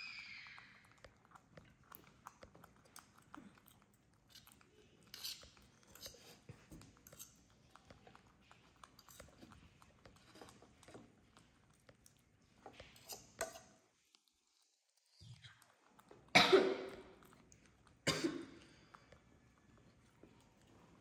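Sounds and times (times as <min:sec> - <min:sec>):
monkeys chewing: 0:00.0 - 0:21.0.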